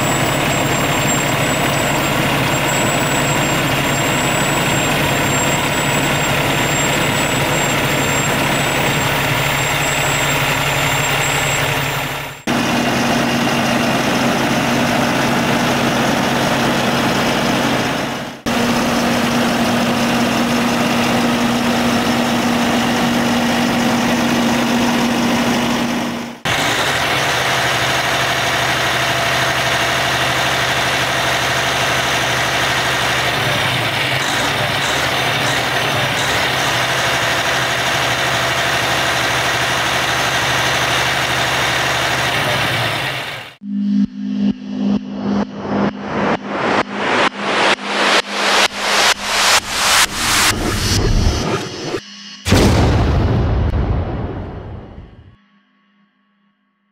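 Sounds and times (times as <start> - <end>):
diesel truck engine idling: 0.0 - 43.6.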